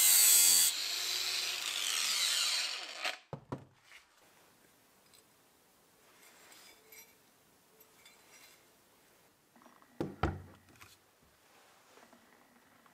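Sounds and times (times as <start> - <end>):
light metallic clinks: 6.1 - 8.7.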